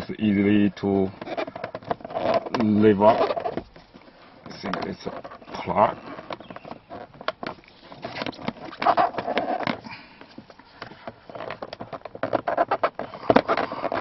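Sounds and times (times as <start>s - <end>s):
hard plastic clicks and knocks: 3.5s - 14.0s.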